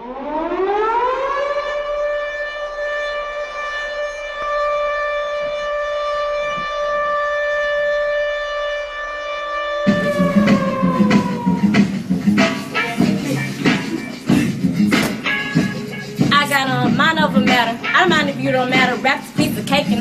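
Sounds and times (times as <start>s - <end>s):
siren wail: 0.0s - 13.9s.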